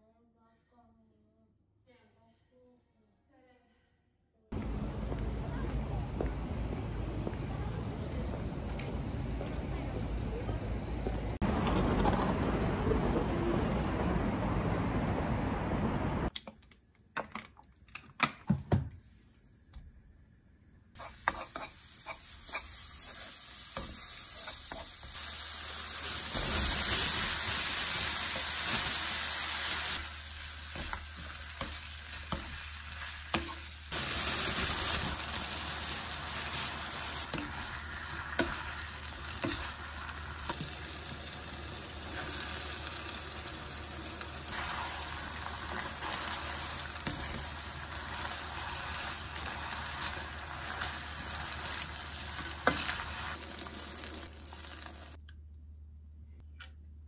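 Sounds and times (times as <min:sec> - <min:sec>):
spatula scraping pan: 0:21.0 - 0:25.1
food sizzling in oil: 0:21.0 - 0:55.2.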